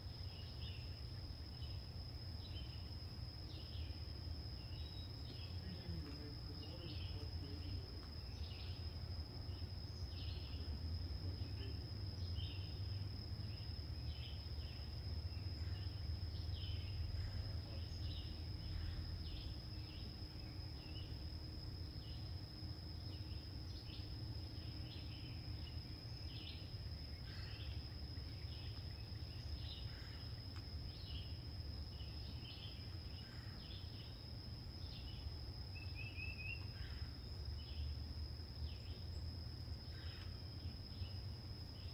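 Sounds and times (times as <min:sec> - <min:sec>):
insect chorus: 0:00.0 - 0:41.9
bird chirps: 0:34.8 - 0:37.9.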